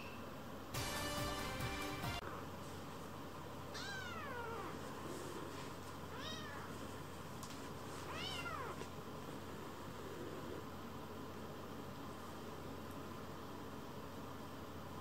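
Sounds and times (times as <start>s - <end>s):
kitten mewing: 3.7s - 4.8s, 6.1s - 6.7s, 8.1s - 8.8s.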